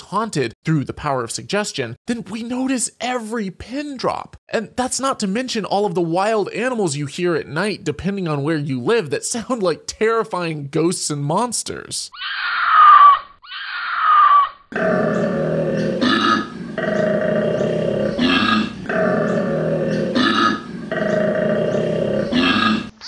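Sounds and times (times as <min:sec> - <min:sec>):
short falling cries: 0:12.1 - 0:14.6
koala bellowing: 0:12.1 - 0:22.9
short belching grunt: 0:14.7 - 0:22.9.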